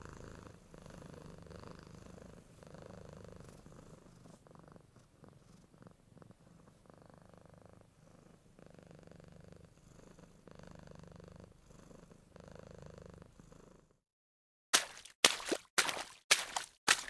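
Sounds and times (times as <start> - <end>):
cat purring: 0.0 - 14.0.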